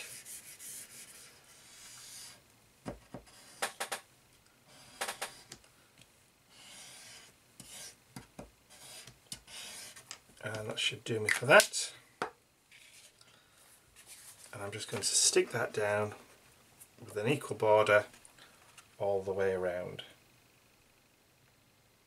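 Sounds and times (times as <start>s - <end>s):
glue stick rubbing on paper: 6.5s - 8.0s, 8.7s - 10.1s.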